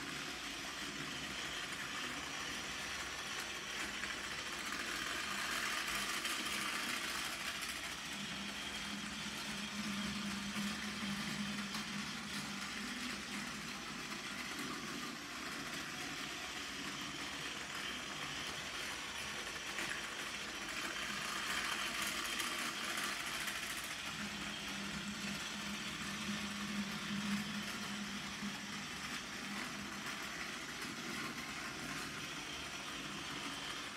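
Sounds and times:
toy train motor whine: 0.0s - 33.9s
toy train wheel rattle: 1.0s - 8.0s, 10.2s - 25.4s.

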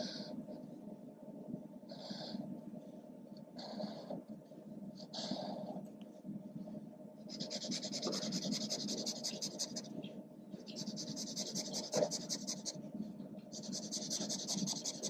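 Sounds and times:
marker scrubbing on paper: 7.3s - 10.0s, 10.7s - 12.8s, 13.5s - 15.0s.

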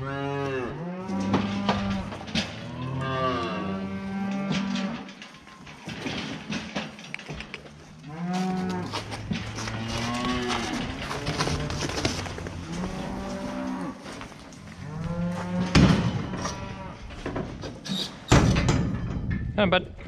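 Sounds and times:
cattle mooing: 0.0s - 5.2s, 7.9s - 14.1s.

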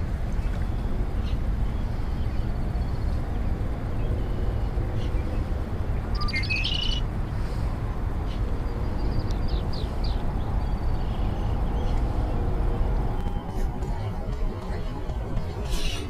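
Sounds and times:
low outdoor rumble: 0.0s - 16.0s
bird chirping: 4.0s - 7.0s.

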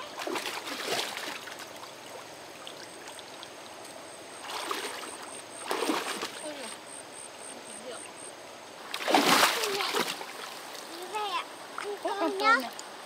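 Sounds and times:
water splash: 0.0s - 3.2s, 4.4s - 6.6s, 8.9s - 10.9s
flowing water rushing: 0.0s - 13.0s.

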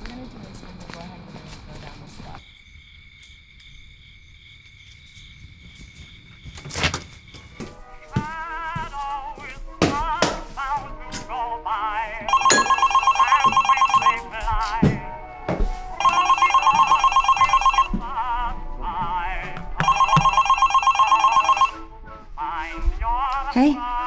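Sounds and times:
smartphone ringing: 12.3s - 14.3s, 16.0s - 18.0s, 19.8s - 21.8s.

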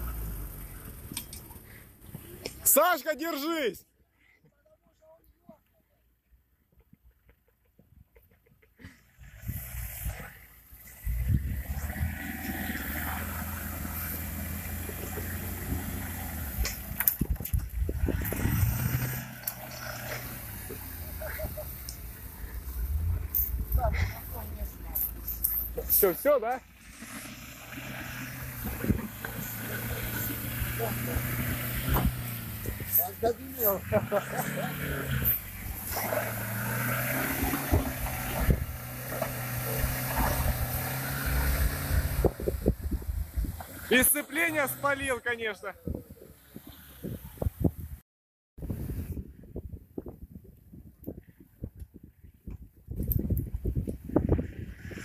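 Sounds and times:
pickup engine droning under load: 0.0s - 2.6s, 9.1s - 26.0s, 26.6s - 45.0s.

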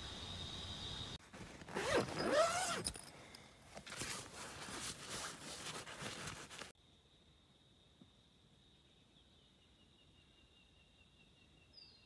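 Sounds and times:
rustling and scraping of gear: 1.2s - 6.7s
zip being pulled: 1.6s - 3.1s.

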